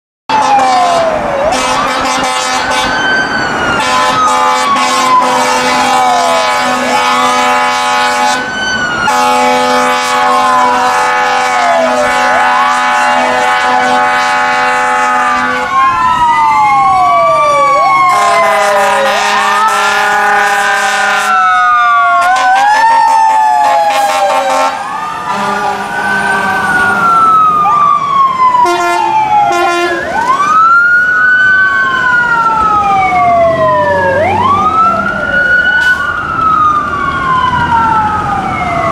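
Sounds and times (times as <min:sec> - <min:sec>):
fire truck air horn blasts: 0:00.3 - 0:03.1, 0:03.7 - 0:16.0, 0:18.0 - 0:27.4, 0:28.6 - 0:30.5, 0:35.8 - 0:36.1
sirens wailing: 0:00.3 - 0:38.9.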